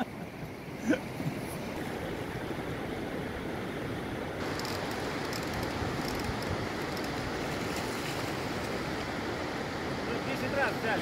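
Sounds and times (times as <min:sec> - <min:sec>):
river water rushing: 0:00.0 - 0:11.0
light crackles: 0:04.4 - 0:08.8.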